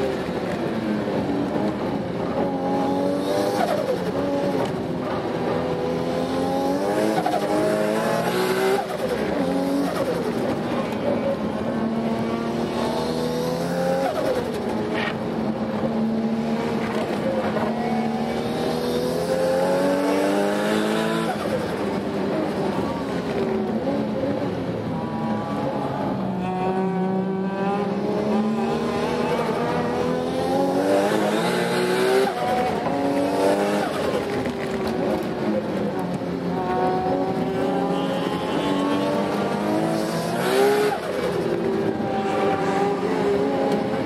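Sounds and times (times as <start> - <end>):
turbo car engine revving: 25.1 - 44.0.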